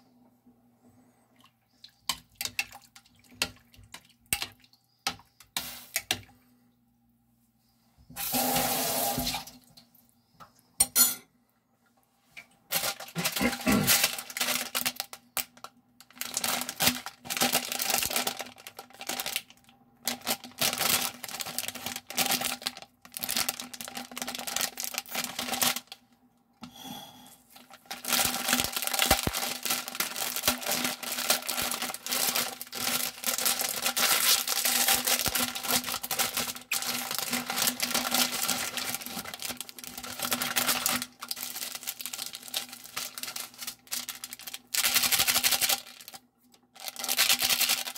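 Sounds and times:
plastic packet crinkling: 12.7s - 26.0s, 27.5s - 47.9s.

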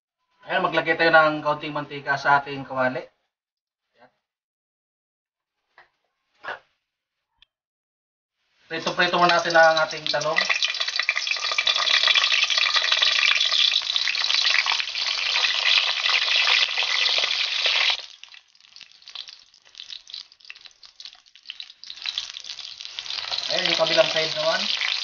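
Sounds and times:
eggplant sizzling in hot oil: 8.6s - 25.0s.

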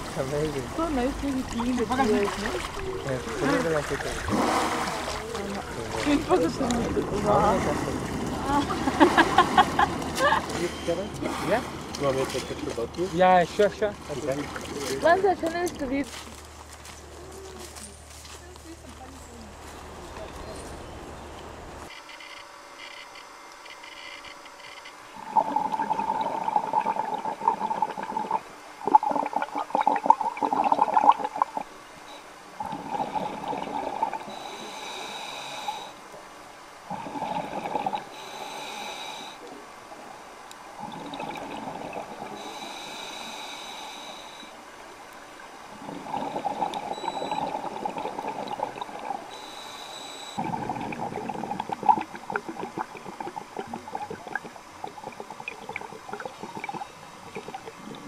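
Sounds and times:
exhaled air bubbling underwater: 25.2s - 36.0s, 36.8s - 39.4s, 40.7s - 44.6s, 45.4s - 58.0s
hissing inhalation with whistle: 34.3s - 36.0s, 38.1s - 39.4s, 42.3s - 44.6s, 49.3s - 50.5s.

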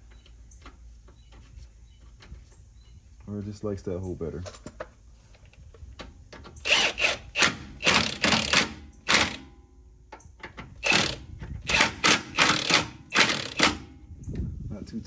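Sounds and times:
hand ratchet clicking: 10.8s - 13.8s.

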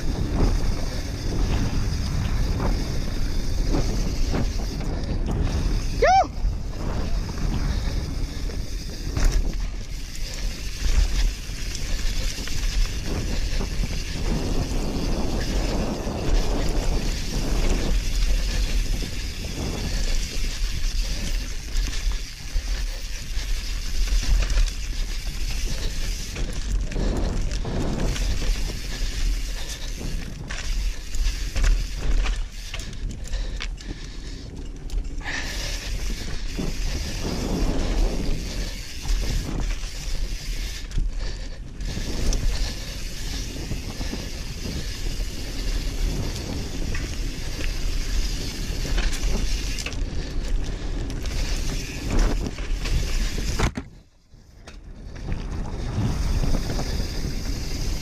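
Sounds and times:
bike rattling and knocking: 0.0s - 58.0s
wind buffeting microphone: 0.0s - 58.0s.

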